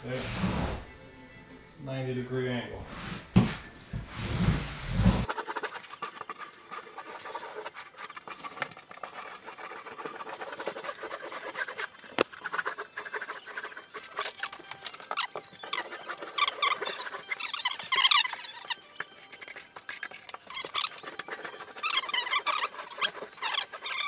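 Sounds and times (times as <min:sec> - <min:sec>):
grout float scraping membrane: 0:00.0 - 0:00.9, 0:02.8 - 0:24.0
float squeaks: 0:06.1 - 0:24.0.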